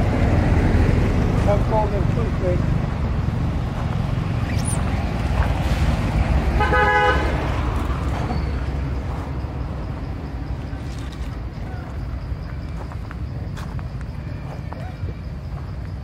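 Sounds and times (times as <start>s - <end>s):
vehicle horn toot: 6.6s - 7.4s.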